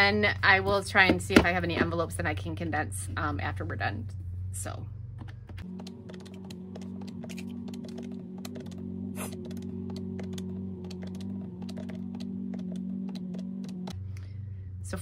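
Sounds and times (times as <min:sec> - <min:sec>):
calculator keys clicking: 0:05.2 - 0:14.0.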